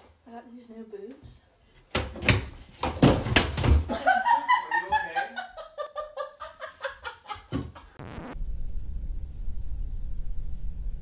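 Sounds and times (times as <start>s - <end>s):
low steady rumble: 8.4s - 11.0s.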